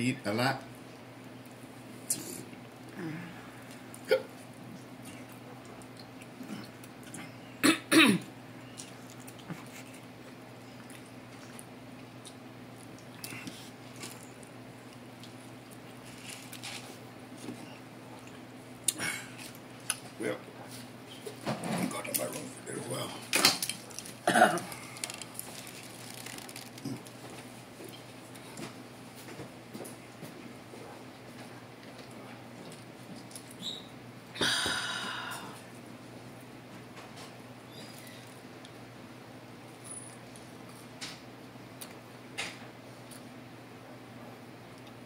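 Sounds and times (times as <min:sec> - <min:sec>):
person clearing throat: 0:04.1 - 0:04.3, 0:07.6 - 0:08.3, 0:24.2 - 0:24.8.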